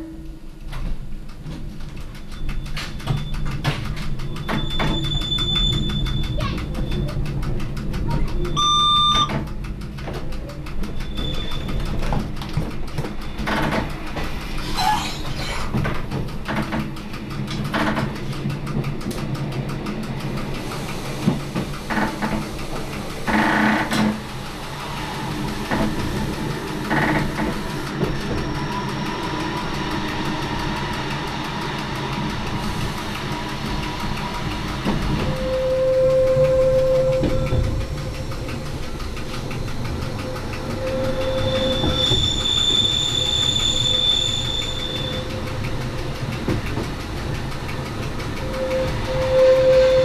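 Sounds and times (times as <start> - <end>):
track knocks and clatter: 0.0 - 50.0
train motor and rail noise: 0.0 - 50.0
train horn: 35.3 - 37.6, 48.4 - 50.0.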